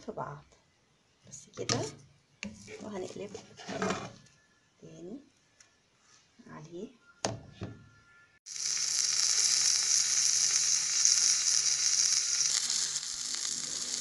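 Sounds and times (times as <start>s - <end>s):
omelette sizzling in a pan: 8.5s - 14.0s.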